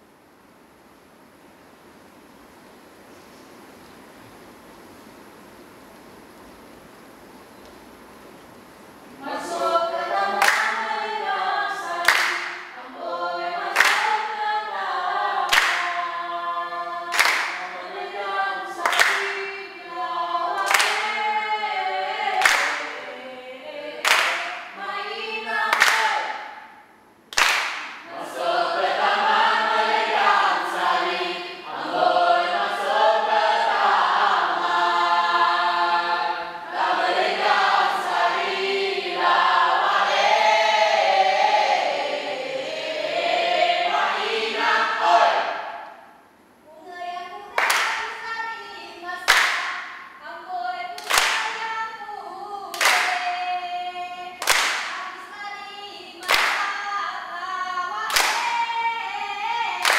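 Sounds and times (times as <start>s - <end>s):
group singing in unison: 9.2s - 26.8s, 27.4s - 46.1s, 47.5s - 59.9s
hand clap: 10.4s - 10.9s, 12.0s - 12.8s, 13.7s - 14.3s, 15.5s - 16.0s, 17.1s - 17.8s, 18.8s - 19.5s, 20.6s - 21.3s, 22.3s - 23.0s, 24.0s - 24.8s, 25.7s - 26.5s, 27.3s - 28.1s, 47.6s - 48.2s, 49.3s - 50.1s, 51.0s - 51.7s, 52.7s - 53.4s, 54.4s - 55.1s, 56.2s - 56.8s, 58.1s - 58.7s.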